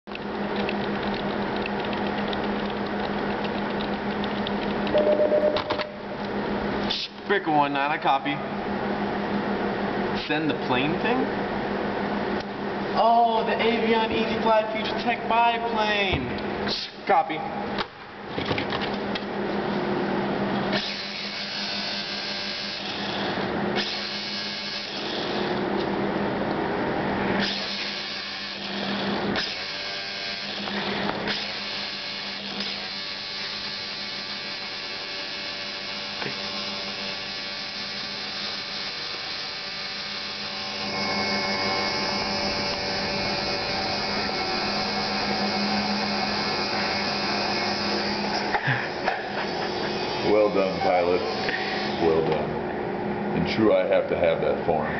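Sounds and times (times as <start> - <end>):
small electric motor whining: 20.7 - 25.6, 27.4 - 48.6, 49.3 - 52.2.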